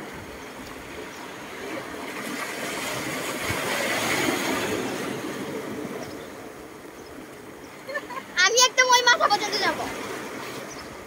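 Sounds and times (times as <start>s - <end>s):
waves washing over pebbles: 0.0s - 7.6s.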